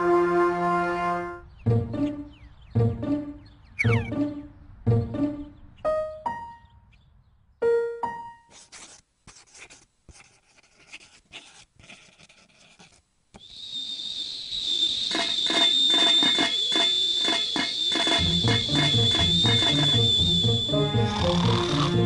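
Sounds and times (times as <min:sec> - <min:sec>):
kettle whistling: 0:13.4 - 0:22.0
rhythmic pulsing sound: 0:15.1 - 0:22.0.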